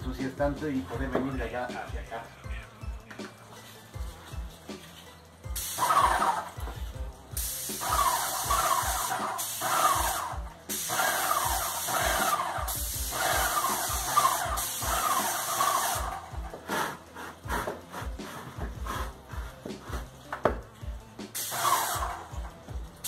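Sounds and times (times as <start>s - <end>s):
piston pump pulsing: 5.6s - 6.8s, 7.4s - 20.6s
paint sprayer hissing: 5.6s - 20.1s, 21.2s - 22.7s.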